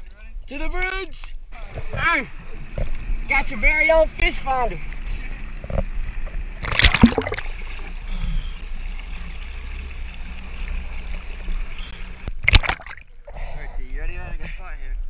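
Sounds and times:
jet ski engine hum: 1.6 - 12.4
water rushing and splashing: 1.7 - 13.4.

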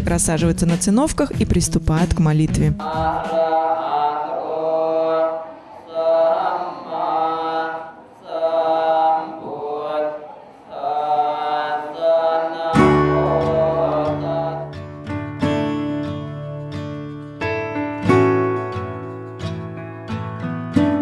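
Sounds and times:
monk chanting into microphone: 2.8 - 10.2
guitar music: 12.7 - 21.0.

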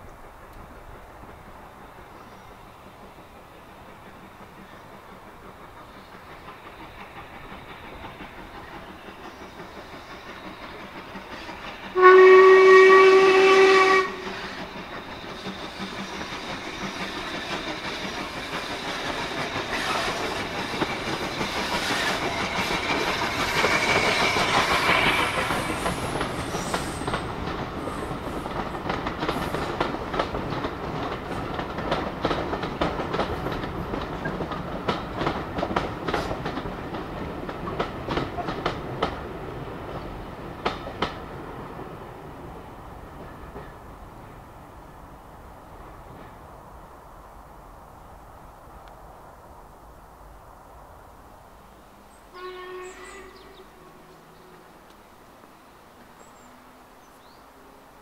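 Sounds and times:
steam locomotive working: 0.1 - 47.0, 51.7 - 58.0
steam locomotive whistle: 11.5 - 14.6, 21.8 - 27.2, 52.3 - 54.7
wheels clicking over rail joints: 14.1 - 43.8.

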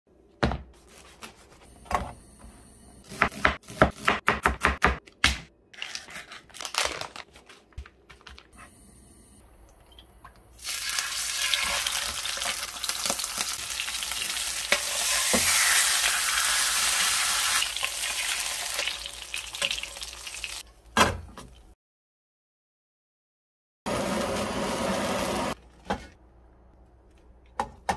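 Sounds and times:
fish sizzling in frying pan: 10.6 - 20.6.

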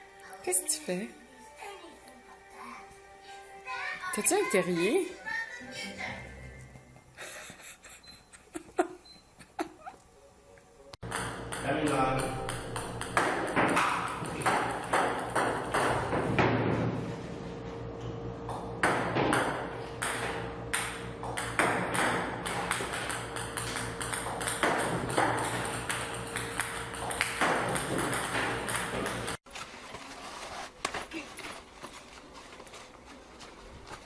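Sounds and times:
table tennis balls clicking: 11.0 - 16.1, 20.8 - 29.4
steady machine hum: 11.0 - 29.4.

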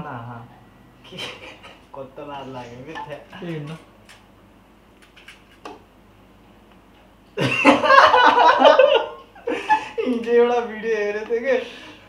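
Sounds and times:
man laughing heartily: 7.4 - 10.1.

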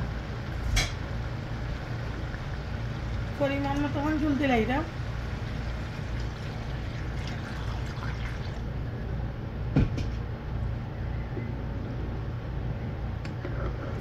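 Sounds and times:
steady low hum: 0.0 - 14.0
water splashing into pot: 5.0 - 8.7.

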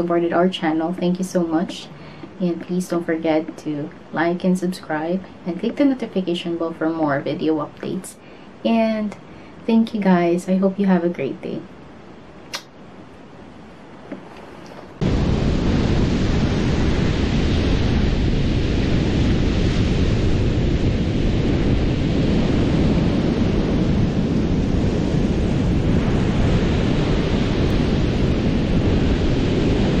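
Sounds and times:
ocean waves breaking: 15.0 - 30.0
wind buffeting microphone: 15.0 - 30.0.

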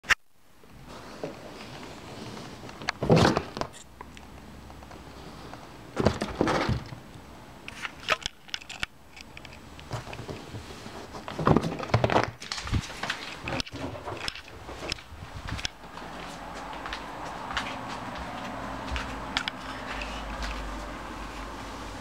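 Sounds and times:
rustling against fabric armchair: 0.8 - 3.3, 9.8 - 11.8, 12.5 - 22.0.

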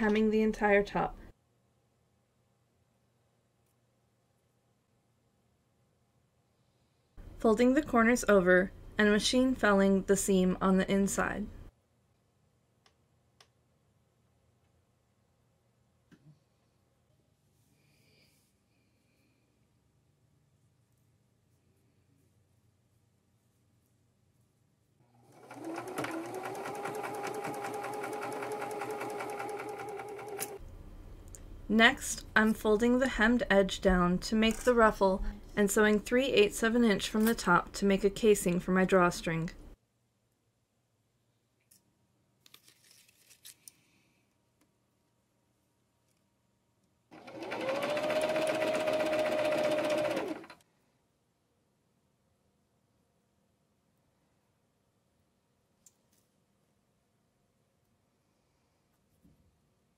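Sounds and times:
sewing machine motor hum: 25.1 - 30.6, 47.1 - 50.6
sewing machine stitching: 25.1 - 30.6, 47.1 - 50.6.

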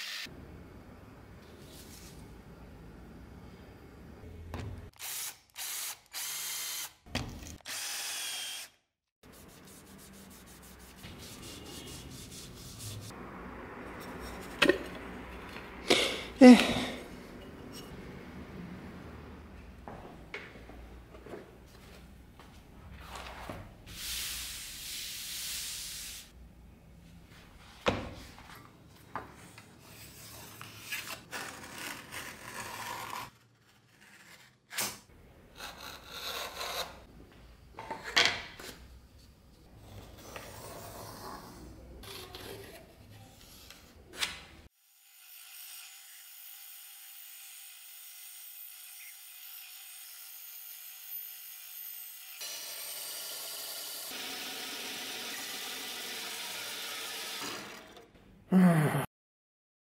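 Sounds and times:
bandsaw running: 52.4 - 58.0.

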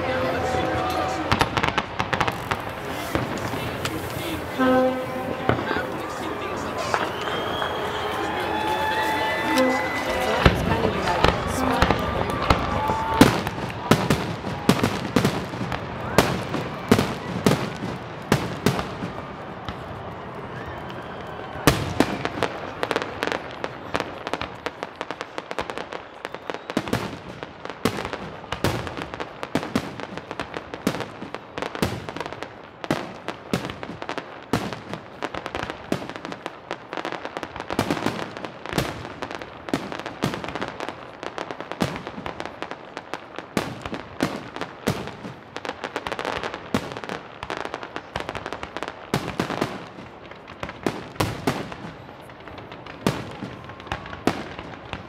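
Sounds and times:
fireworks shells bursting: 0.0 - 16.8.

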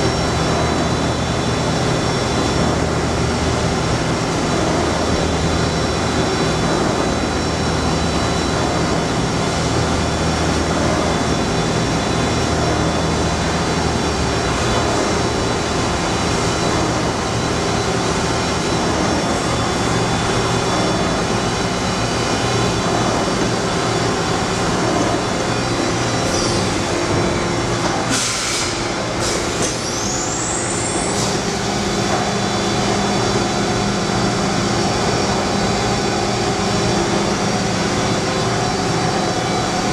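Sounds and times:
surface grinder humming and whining: 0.0 - 39.9
hiss with rising whistles: 28.1 - 31.9.

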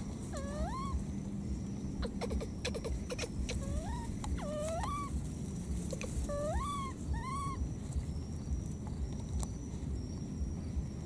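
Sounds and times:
low steady rumble: 0.0 - 11.0
baby macaque coo calls: 0.3 - 1.2, 1.9 - 8.6.

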